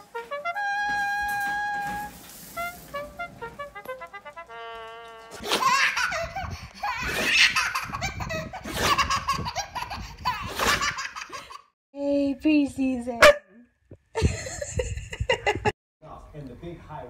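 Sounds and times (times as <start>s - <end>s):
baby laughing: 5.3s - 11.7s.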